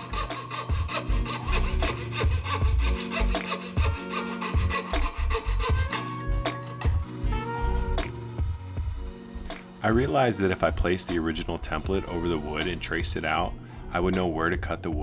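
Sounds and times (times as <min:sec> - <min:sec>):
saw rasping through wood: 0:00.0 - 0:06.3, 0:07.1 - 0:13.2
background music: 0:00.0 - 0:15.0.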